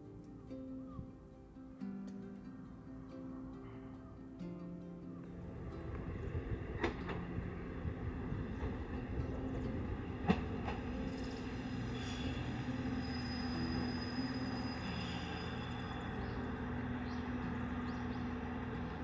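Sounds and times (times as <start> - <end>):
vehicle rumble and hum: 5.3 - 13.0, 13.6 - 19.0.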